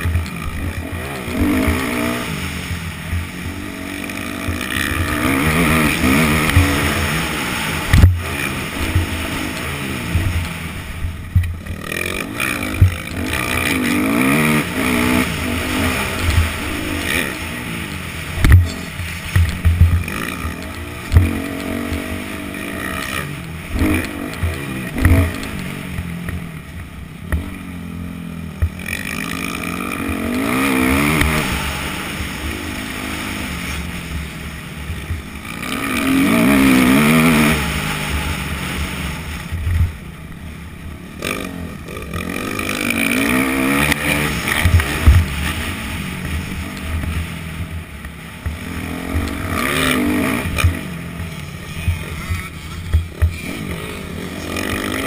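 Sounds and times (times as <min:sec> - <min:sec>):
dirt bike engine revving: 0:00.0 - 0:55.0
low thumps: 0:18.3 - 0:20.2.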